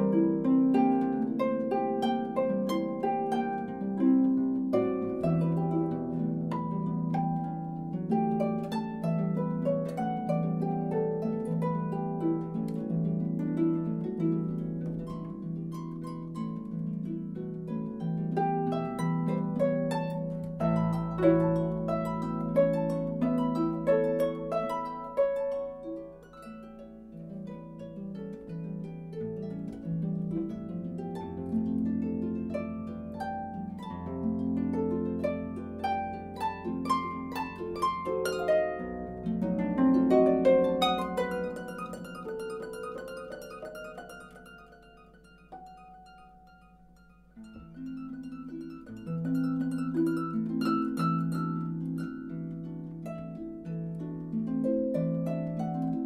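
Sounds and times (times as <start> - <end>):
harp playing classical piece: 0.0 - 56.0.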